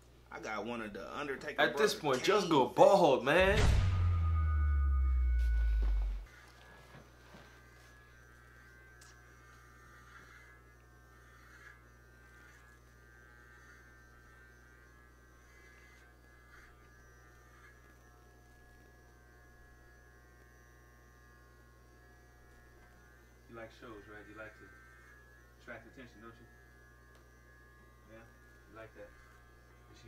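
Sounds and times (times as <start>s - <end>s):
electric hair clippers buzzing: 3.4s - 30.0s.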